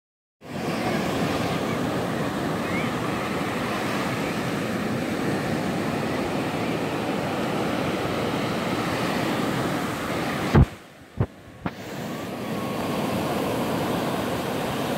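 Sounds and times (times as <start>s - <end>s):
ocean surf breaking: 0.4s - 14.9s.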